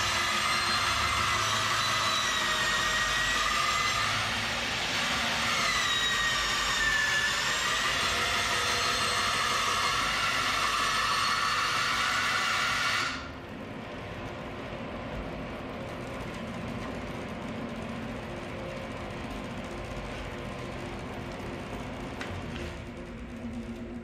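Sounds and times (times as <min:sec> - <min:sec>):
bandsaw cutting wood: 0:00.0 - 0:13.3.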